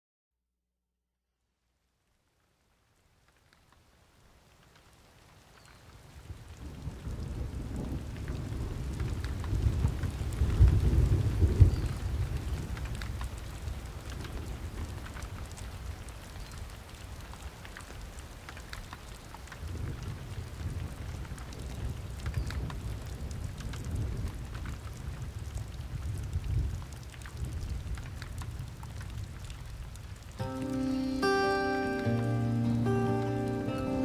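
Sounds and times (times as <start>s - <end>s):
rain falling: 1.7s - 34.0s
rolling thunder rumble: 6.6s - 13.2s.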